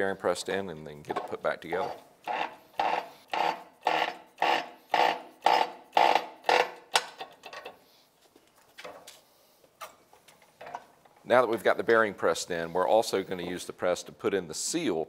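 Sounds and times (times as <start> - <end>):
hydraulic press pumping: 1.1 - 7.8.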